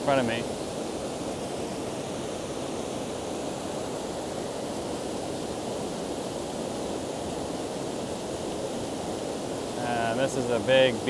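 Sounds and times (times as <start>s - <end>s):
white water rushing over rocks: 0.0s - 11.0s.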